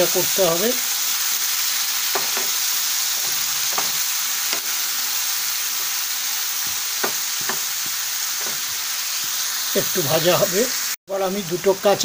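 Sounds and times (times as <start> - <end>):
stems sizzling in hot oil: 0.0 - 12.0
spatula knocking pan: 2.1 - 4.8, 6.6 - 9.4.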